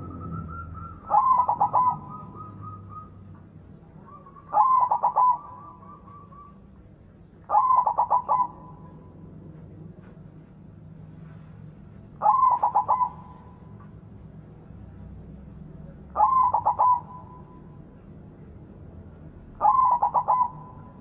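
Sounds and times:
dove cooing: 0.0 - 9.7, 12.2 - 14.0, 16.0 - 17.9, 19.4 - 21.0.

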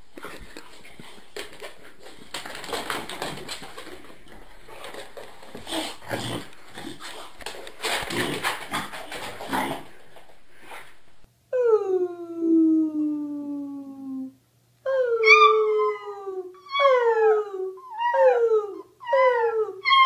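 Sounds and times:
dog cry falling in pitch: 14.9 - 20.0
dog whimpering and whining: 14.9 - 20.0.

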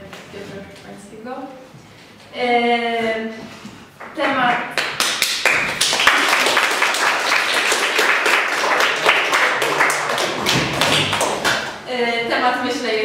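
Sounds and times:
crowd applauding: 5.1 - 11.8.

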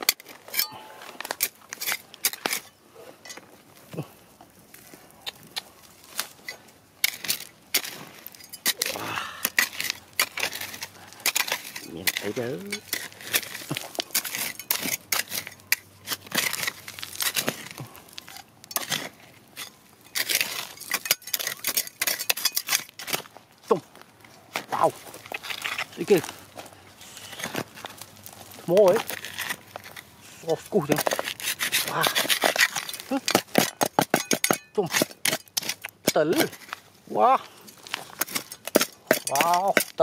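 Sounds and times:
metal clinking on rock: 0.0 - 3.4, 6.4 - 9.0, 9.6 - 17.5, 18.2 - 23.1, 32.3 - 36.8, 37.7 - 40.0
hand tool scraping stony soil: 0.0 - 4.1, 4.7 - 40.0
gravel crunching: 0.0 - 40.0.

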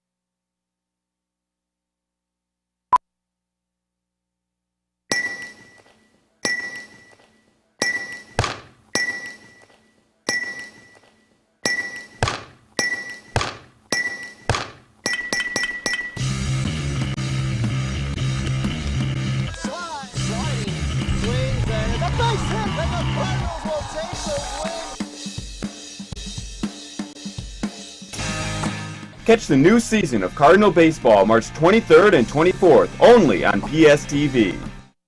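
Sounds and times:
rock music: 16.1 - 34.9.

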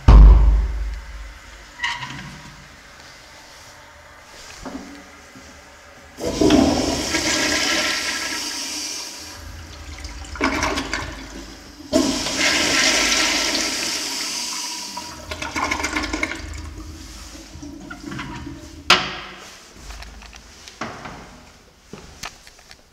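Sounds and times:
toilet flushing: 1.0 - 21.5
water gurgling as bowl drains: 9.2 - 13.9, 15.0 - 18.7.

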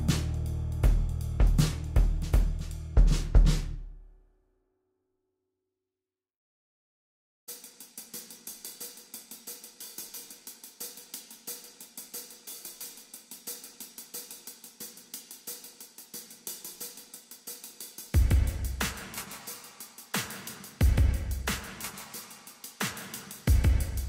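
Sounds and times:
hi-hat fast pattern: 0.0 - 3.8, 7.5 - 24.0
deep electronic kick drum: 0.0 - 3.9, 18.2 - 19.1, 20.8 - 21.8, 23.5 - 24.0.

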